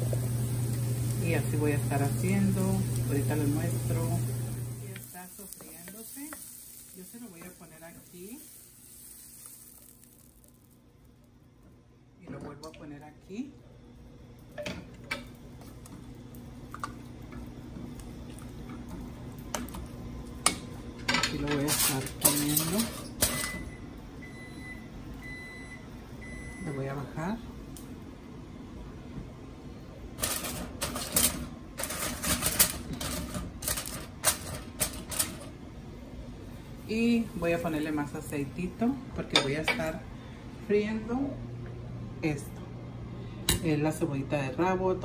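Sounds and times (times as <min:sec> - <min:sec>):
steady low hum: 0:00.0 - 0:22.2, 0:22.8 - 0:45.0
aluminium foil crinkling: 0:04.9 - 0:11.1, 0:30.2 - 0:35.4.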